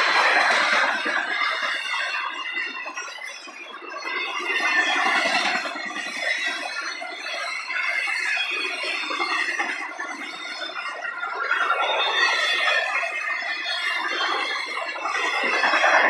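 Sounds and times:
freight cars rolling on rails: 0:00.0 - 0:03.2
train wheels squealing: 0:00.0 - 0:16.0.

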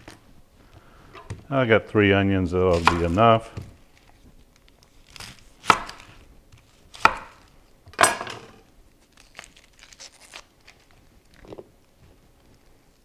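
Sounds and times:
knife chopping on cutting board: 0:02.7 - 0:03.7, 0:05.6 - 0:06.2, 0:06.9 - 0:07.4.

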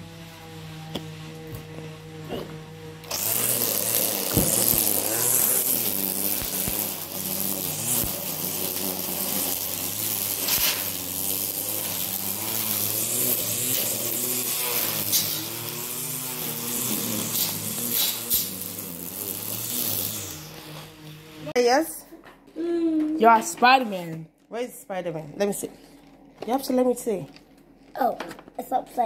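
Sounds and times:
electric string trimmer buzzing: 0:00.0 - 0:21.6.

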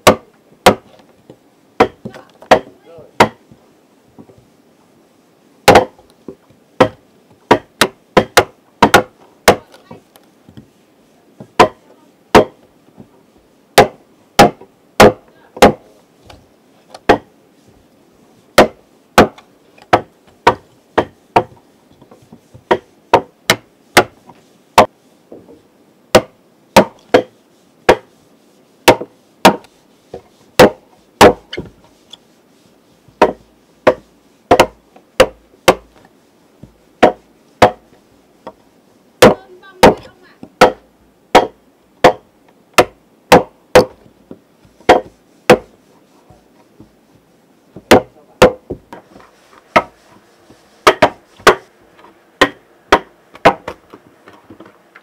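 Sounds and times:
hand tool chopping wood: 0:00.0 - 0:01.0, 0:01.8 - 0:03.4, 0:05.6 - 0:06.0, 0:06.8 - 0:09.8, 0:11.4 - 0:12.6, 0:13.8 - 0:15.9, 0:17.0 - 0:17.3, 0:18.6 - 0:21.6, 0:22.6 - 0:24.2, 0:26.1 - 0:28.1, 0:28.8 - 0:29.7, 0:30.6 - 0:31.8, 0:33.2 - 0:36.0, 0:37.0 - 0:37.8, 0:39.2 - 0:42.2, 0:42.8 - 0:44.0, 0:44.8 - 0:45.8, 0:47.8 - 0:50.0, 0:50.8 - 0:51.7, 0:52.4 - 0:54.8.

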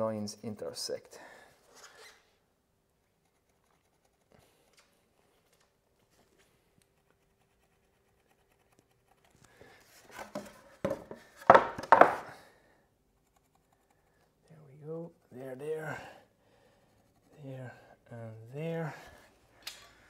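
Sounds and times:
board scraping on wooden table: 0:10.1 - 0:12.3
wood knocks: 0:10.2 - 0:12.3.

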